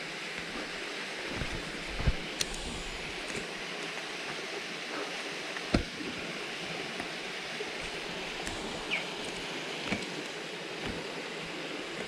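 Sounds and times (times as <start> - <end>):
steady rushing noise: 0.0 - 3.8.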